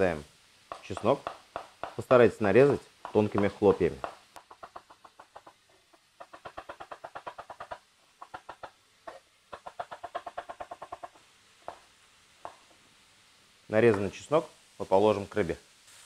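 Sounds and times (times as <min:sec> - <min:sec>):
knife tapping on cutting board: 0:00.7 - 0:02.2, 0:03.0 - 0:11.8.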